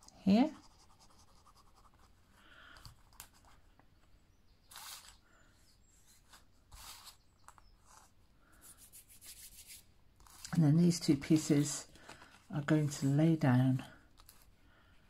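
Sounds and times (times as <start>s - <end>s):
paper card rustling: 4.7s - 5.2s, 10.2s - 14.6s.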